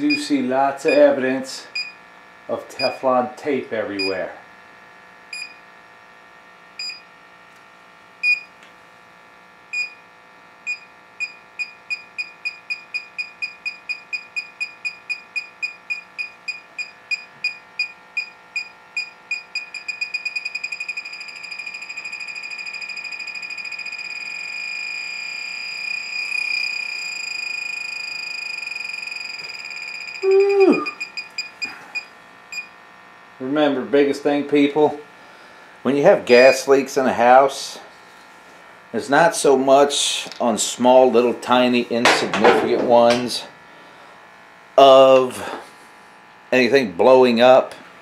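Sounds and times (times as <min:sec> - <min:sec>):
gas detector beeping: 0:00.1 - 0:02.0, 0:02.8 - 0:03.0, 0:04.0 - 0:04.2, 0:05.3 - 0:05.6, 0:06.8 - 0:07.1, 0:08.2 - 0:08.6, 0:09.7 - 0:32.8.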